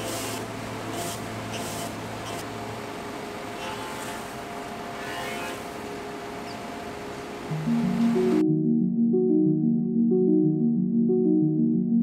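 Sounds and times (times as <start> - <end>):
jointer-planer cutting a board: 5.0 - 5.7.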